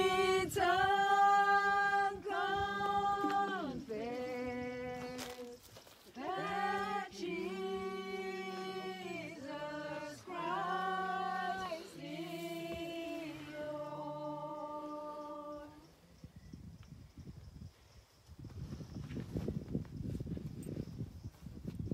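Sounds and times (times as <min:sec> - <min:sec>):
group singing a hymn: 0:00.0 - 0:16.0.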